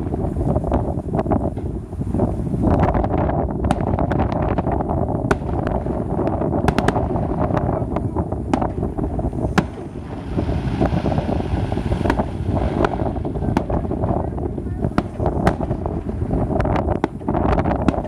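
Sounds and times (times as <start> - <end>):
fireworks bursting: 0.0 - 18.0
wind rumble on microphone: 0.0 - 18.0.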